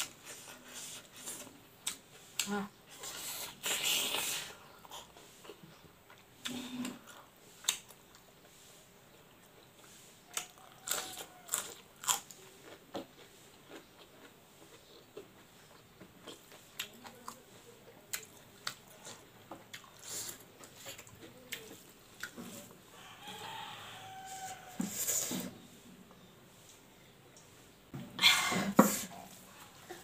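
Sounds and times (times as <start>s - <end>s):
person chewing with wet smacks: 0.0s - 8.5s, 9.6s - 22.6s.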